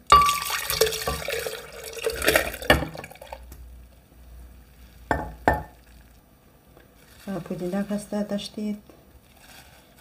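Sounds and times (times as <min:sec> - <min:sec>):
liquid pouring and splashing: 0:00.1 - 0:03.5, 0:04.6 - 0:06.3.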